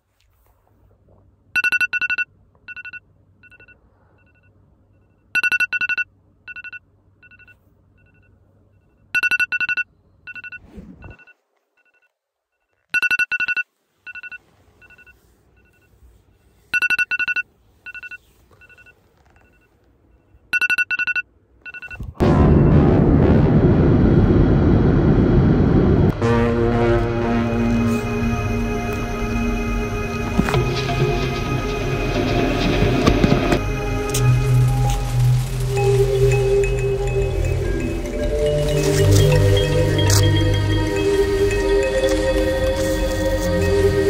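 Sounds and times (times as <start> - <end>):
electronic alarm double beep: 9.2 - 12.0.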